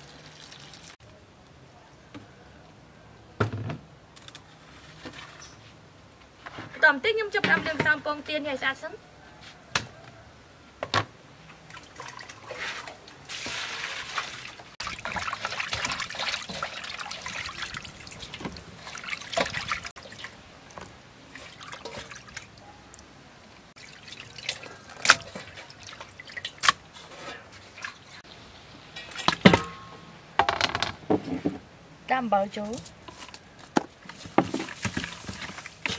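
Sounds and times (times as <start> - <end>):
water sloshing and splashing: 11.5 - 22.7, 23.6 - 28.3, 28.9 - 29.8, 34.0 - 35.9.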